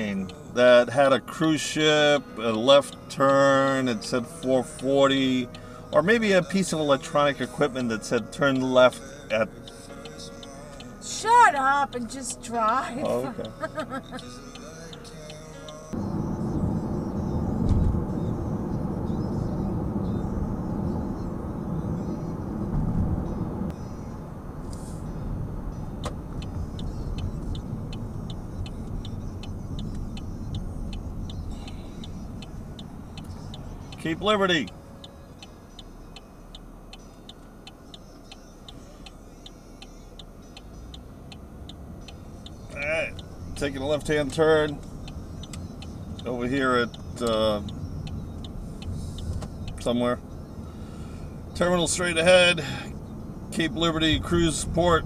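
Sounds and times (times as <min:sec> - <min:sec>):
engine and cabin hum: 0:00.0 - 0:55.0
road and tyre noise: 0:00.0 - 0:55.0
turn signal clicking: 0:03.7 - 0:22.1, 0:25.6 - 0:50.8.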